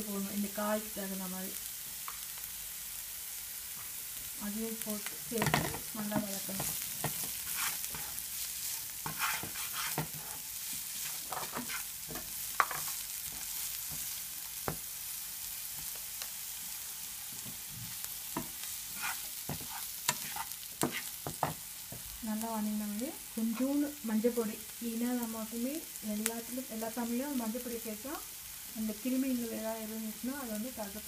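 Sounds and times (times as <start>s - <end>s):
vegetables sizzling in oil: 0.0s - 31.0s
turner stirring and scraping: 5.4s - 14.1s, 18.4s - 22.1s.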